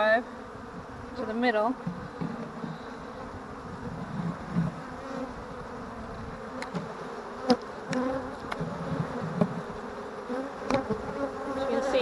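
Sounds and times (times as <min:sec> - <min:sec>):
bees buzzing: 0:00.0 - 0:12.0
wooden hive frames clicking: 0:06.5 - 0:09.6.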